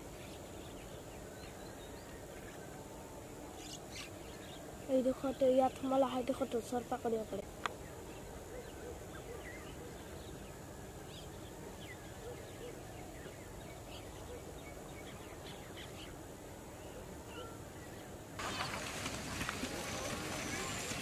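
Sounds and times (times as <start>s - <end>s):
busy background noise: 0.0s - 21.0s
low background hiss: 0.0s - 21.0s
bird chirps and calls: 3.6s - 6.5s.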